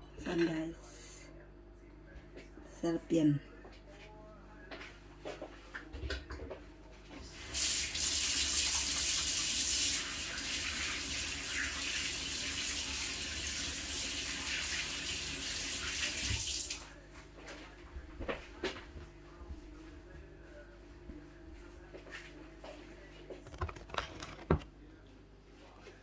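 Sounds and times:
tap running into a sink: 15.5s - 16.8s.

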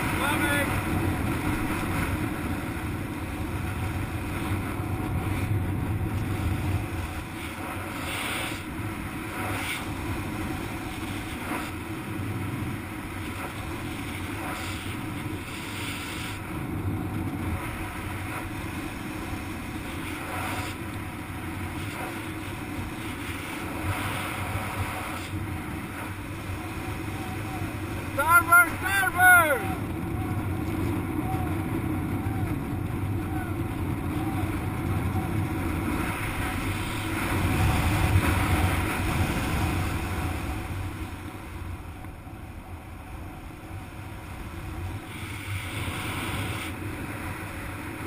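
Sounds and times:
wind rushing over microphone: 0.0s - 48.0s.

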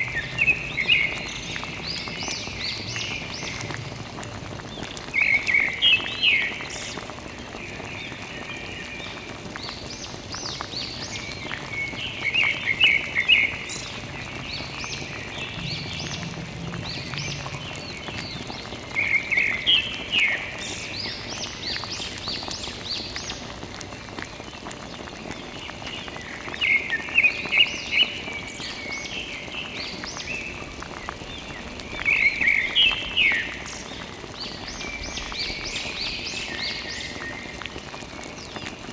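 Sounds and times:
water trickling onto plastic: 0.0s - 38.9s
bird chirping: 10.6s - 23.1s.

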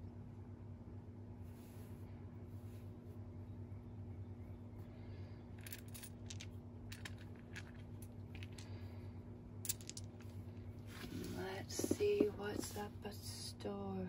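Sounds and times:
steady low hum: 0.0s - 14.0s
dice and bones clicking: 5.6s - 8.7s, 9.7s - 10.3s.

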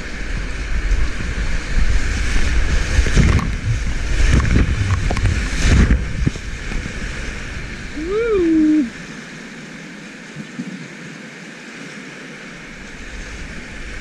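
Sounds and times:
water buffeting microphone: 0.0s - 14.0s
whitewater rushing: 0.0s - 14.0s
water splashing onto camera: 1.1s - 9.7s.

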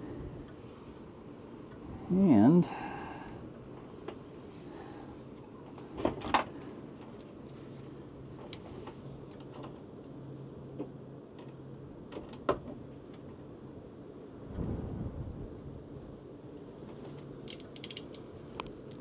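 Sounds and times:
hand tools clicking on wires: 17.5s - 19.0s.

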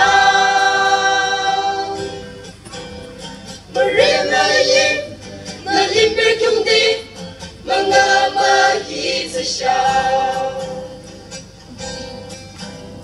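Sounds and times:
choir singing slow song: 0.0s - 2.4s, 3.7s - 11.4s
guitar: 0.0s - 13.0s.

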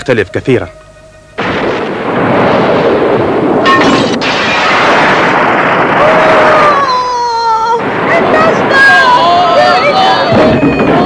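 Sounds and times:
cartoon crash with rushing noise: 1.4s - 6.9s.

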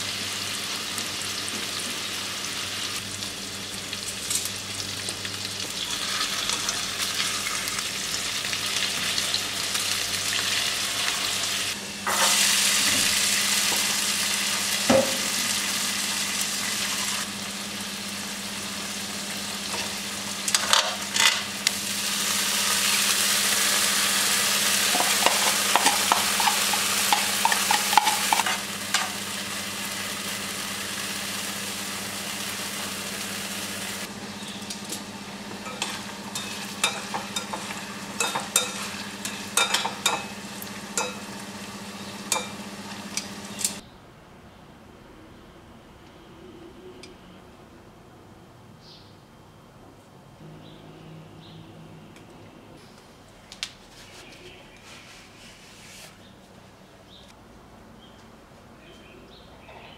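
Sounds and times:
food sizzling in oil: 0.0s - 34.1s, 35.0s - 43.8s
utensil scraping pan: 24.9s - 29.1s, 35.6s - 40.3s.

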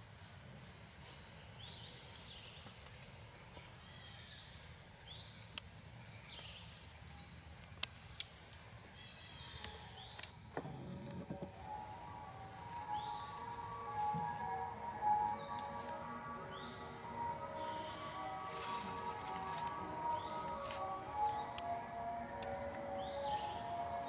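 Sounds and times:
bird calling: 9.5s - 24.0s.

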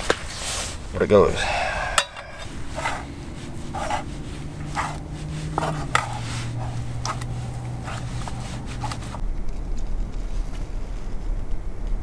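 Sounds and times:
steady low hum: 0.0s - 12.0s
spatula scraping a cook pot: 1.4s - 9.2s.

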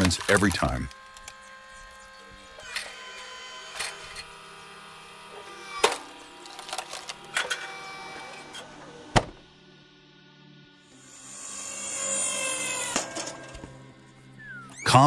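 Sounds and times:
wood cracking and splitting: 0.0s - 1.4s, 5.8s - 7.4s
log splitter humming: 0.0s - 9.5s.

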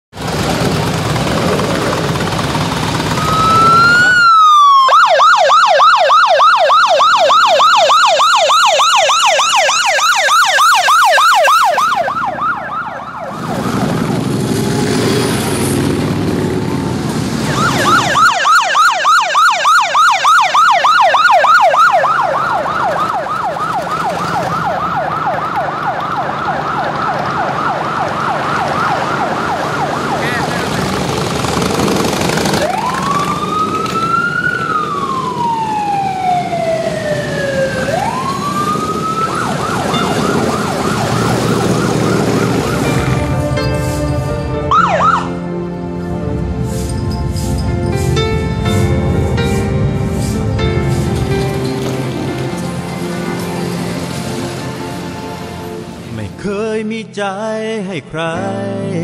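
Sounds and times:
motorcycle engine and road noise: 0.1s - 56.6s
electronic siren wailing and yelping: 3.1s - 15.3s, 16.6s - 30.8s, 32.2s - 45.5s.

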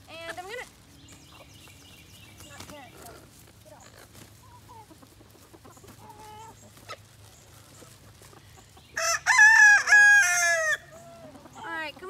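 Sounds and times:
chicken clucking: 0.1s - 12.0s
loud drawn-out chicken call: 9.0s - 11.0s.

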